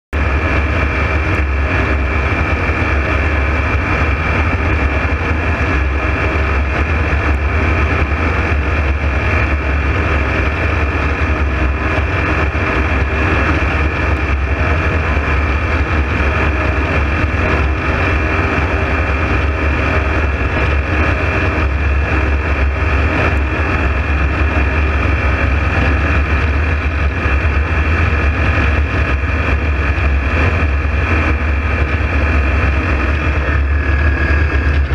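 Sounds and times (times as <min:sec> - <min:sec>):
aircraft engine and propeller drone: 0:00.1 - 0:34.9.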